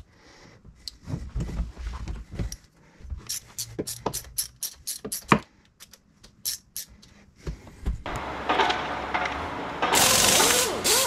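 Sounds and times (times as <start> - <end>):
hand ratchet clicking: 3.3 - 7.1.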